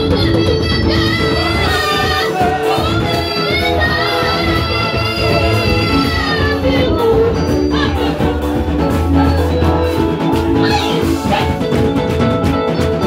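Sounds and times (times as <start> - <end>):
drums: 0.0 - 13.0
electronic keyboard bell-like notes: 0.0 - 13.0.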